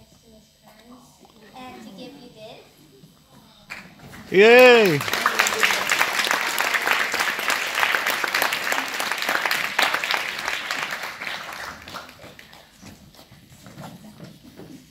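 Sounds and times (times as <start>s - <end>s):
audience applauding: 4.3s - 12.6s.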